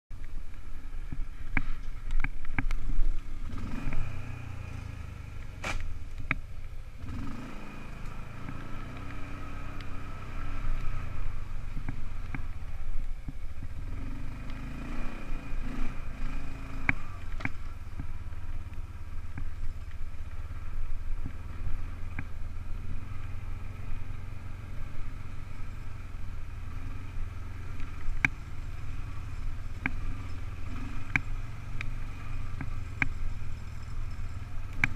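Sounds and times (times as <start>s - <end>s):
quad bike engine running: 0.2s - 34.9s
sharp clicks and knocks: 29.7s - 30.2s.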